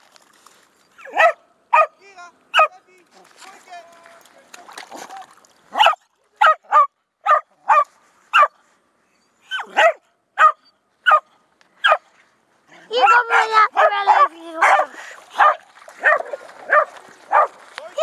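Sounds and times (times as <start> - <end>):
dog barking: 1.0 - 2.0, 5.8 - 8.6, 9.5 - 12.0, 13.0 - 17.6.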